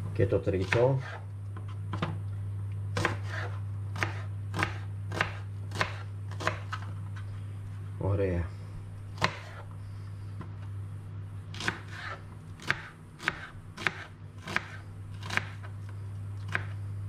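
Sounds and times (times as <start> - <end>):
low hum: 1.2 - 17.0
knife chopping on cutting board: 3.0 - 6.8, 9.2 - 9.6, 11.6 - 15.7, 16.5 - 16.7.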